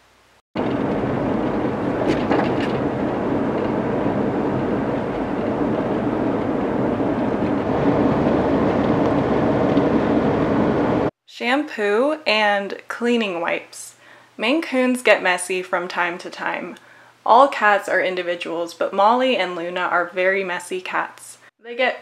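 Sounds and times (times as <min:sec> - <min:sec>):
road and engine noise in car: 0:00.6 - 0:11.1.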